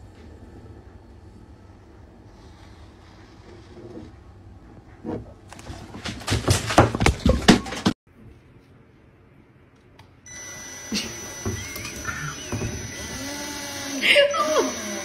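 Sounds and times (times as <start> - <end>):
cordless drill motor whining: 10.3 - 15.0.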